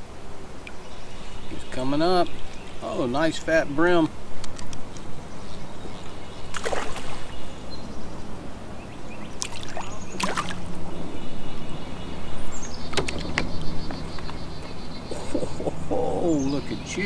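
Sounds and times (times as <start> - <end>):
fish splashing at the surface: 6.5 - 7.3, 9.4 - 10.6
water lapping against a hull: 9.4 - 10.7.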